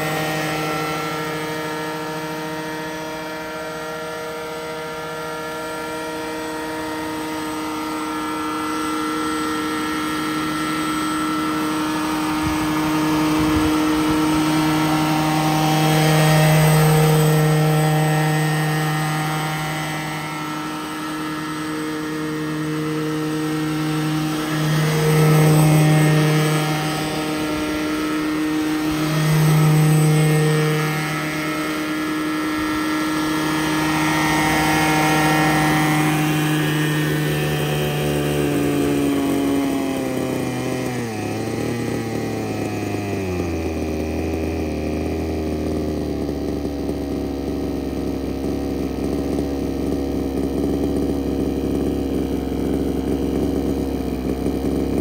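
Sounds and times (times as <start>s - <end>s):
model helicopter engine and rotors: 0.0s - 55.0s.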